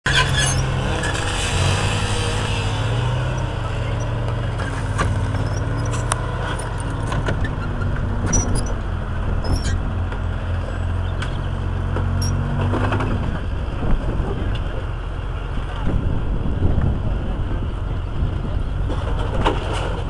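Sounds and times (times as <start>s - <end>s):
tracked vehicle engine running: 0.0s - 20.0s
metallic clanks of steel tracks: 0.1s - 10.2s.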